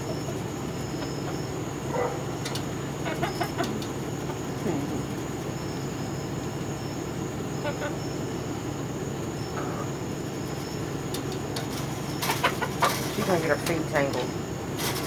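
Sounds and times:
chickens calling softly: 0.0 - 14.6.

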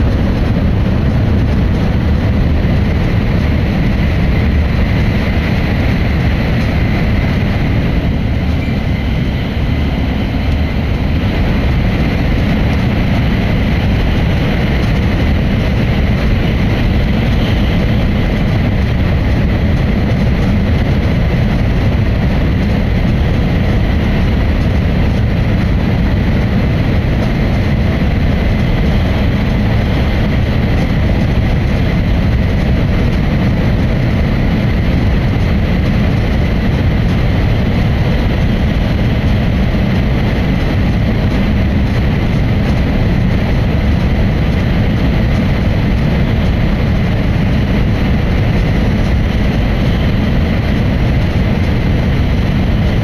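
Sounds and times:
train running rumble: 0.0 - 53.0.

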